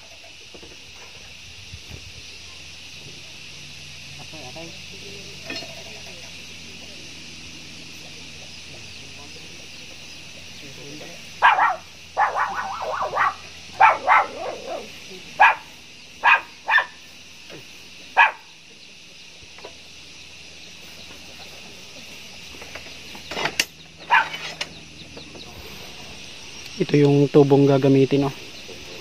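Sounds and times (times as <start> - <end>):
high-pitched insect hiss: 0.0 - 29.0
dog barking: 11.4 - 17.0, 18.2 - 18.6, 24.0 - 24.4.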